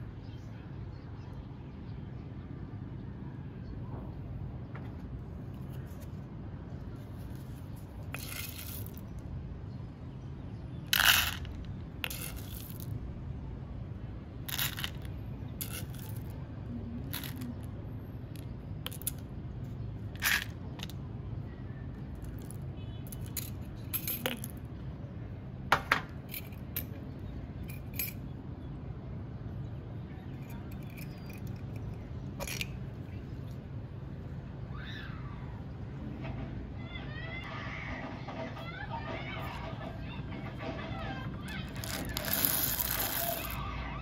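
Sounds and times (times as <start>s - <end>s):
clicks and clinks of small objects: 7.3s - 9.2s, 10.9s - 12.9s, 14.5s - 16.3s, 17.1s - 17.7s, 18.3s - 19.3s, 20.2s - 21.0s, 22.2s - 24.7s, 25.9s - 28.3s, 30.4s - 33.6s, 41.7s - 43.6s.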